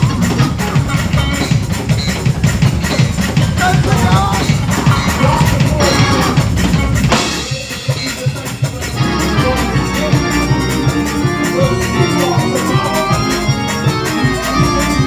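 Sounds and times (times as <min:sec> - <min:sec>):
driving drum kit: 0:00.0 - 0:15.0
fast organ chords: 0:00.0 - 0:15.0
loud cymbal crash: 0:07.1 - 0:08.6.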